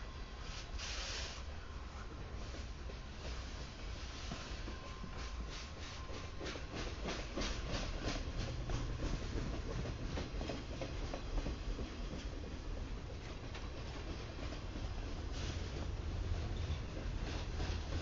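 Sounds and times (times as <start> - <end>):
low rumble of rolling freight cars: 0.0 - 18.0
train wheels clicking over rail joints: 2.4 - 18.0.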